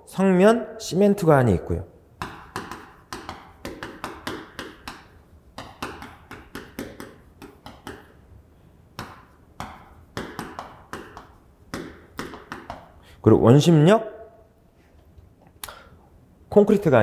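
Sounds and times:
chalk writing on a chalkboard: 2.2s - 8.2s, 9.0s - 13.0s.

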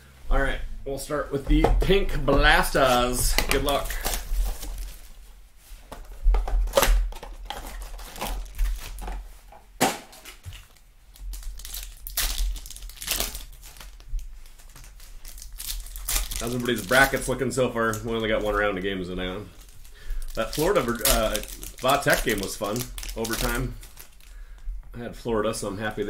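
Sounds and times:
card pack wrappers crinkling and tearing: 2.6s - 5.2s, 6.6s - 9.2s, 10.2s - 24.4s.

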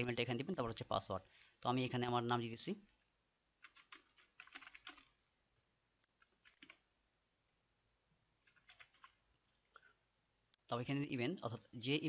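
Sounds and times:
keyboard typing: 3.6s - 5.2s, 6.0s - 6.9s, 8.4s - 9.2s.

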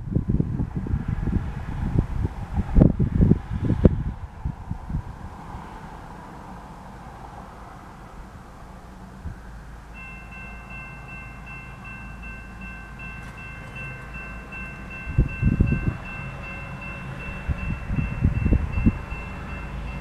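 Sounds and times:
low rumbling: 0.0s - 20.0s
crossing warning bell ringing: 9.8s - 20.0s.

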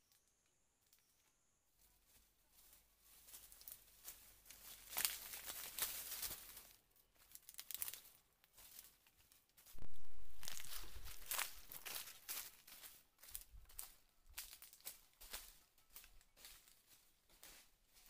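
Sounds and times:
footsteps crunching through dry leaves: 2.0s - 18.0s
low rumble: 9.8s - 12.1s.

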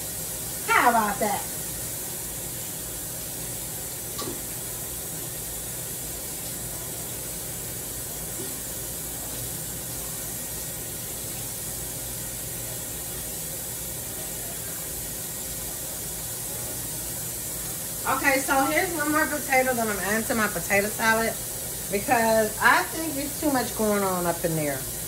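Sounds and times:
steady kitchen hiss: 0.0s - 25.0s.

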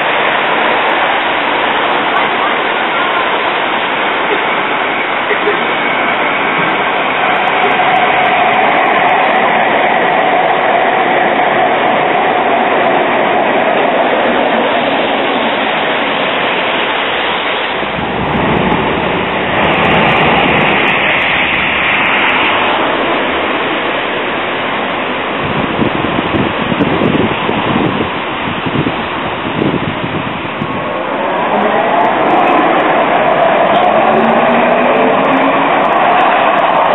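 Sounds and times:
tram motor whine: 0.0s - 25.0s
tram rolling along track: 0.0s - 36.9s.

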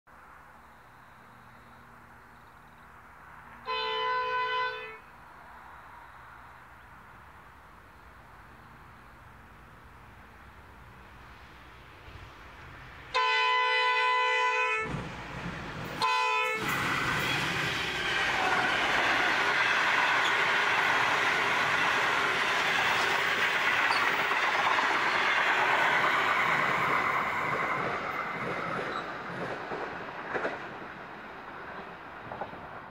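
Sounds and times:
locomotive air horn: 3.6s - 5.1s, 13.1s - 14.9s, 16.0s - 19.1s
train wheels clickety-clack: 14.8s - 32.9s.

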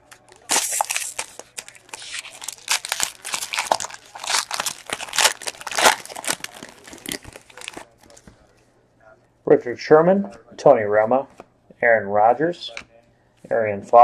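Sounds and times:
foil wrapper crinkling: 0.0s - 8.2s.

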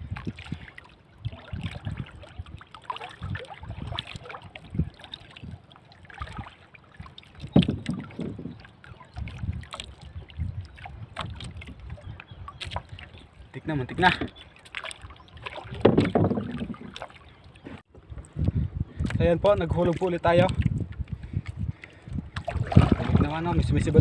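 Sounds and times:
water lapping against canoe hull: 0.0s - 24.0s.

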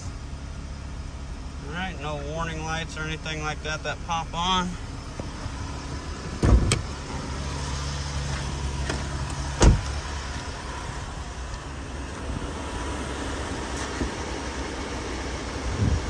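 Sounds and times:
car engine idling: 0.0s - 16.0s
car door shutting: 6.2s - 7.2s, 8.2s - 10.5s.

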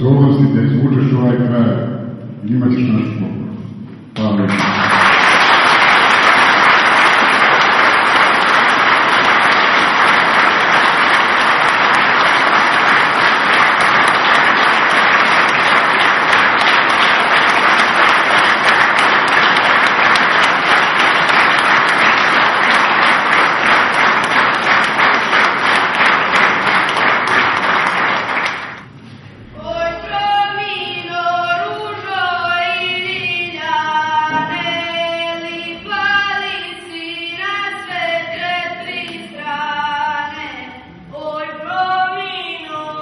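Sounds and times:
audience applauding: 4.2s - 28.9s.

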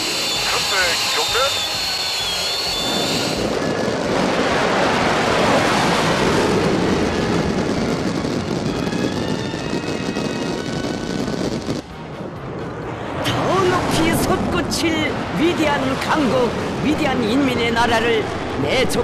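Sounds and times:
military jet flying over: 0.0s - 19.0s.

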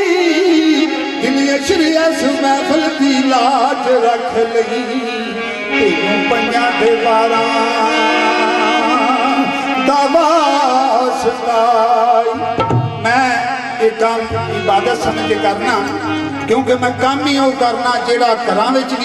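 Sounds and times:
ornamented folk melody: 0.0s - 19.0s
held drone tones: 12.4s - 18.7s.

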